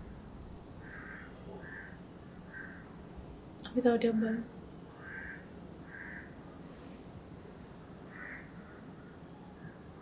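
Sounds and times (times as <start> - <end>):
crickets trilling: 0.0 - 10.0.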